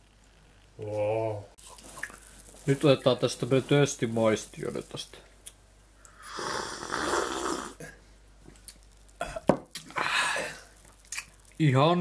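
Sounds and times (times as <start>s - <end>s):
person slurping fizzy drink: 6.2s - 7.8s.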